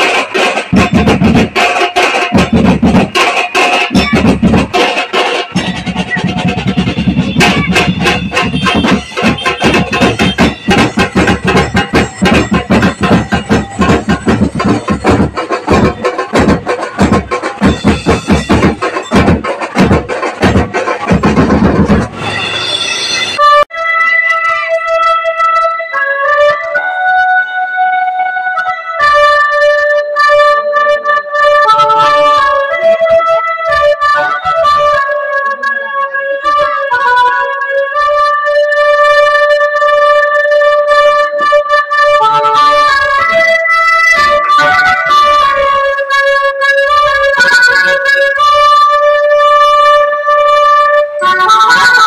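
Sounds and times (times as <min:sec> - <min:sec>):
reedy held instrumental notes: 0:00.0 - 0:52.0
electronic keyboard melody: 0:22.6 - 0:52.0.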